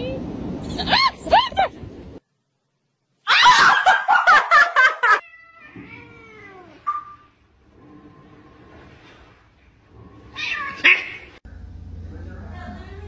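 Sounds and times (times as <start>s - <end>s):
cats yowling: 5.0s - 7.0s, 10.3s - 11.3s.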